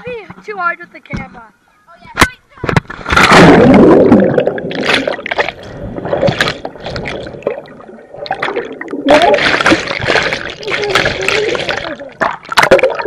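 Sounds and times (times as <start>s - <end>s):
muffled water churning underwater: 2.7s - 13.0s.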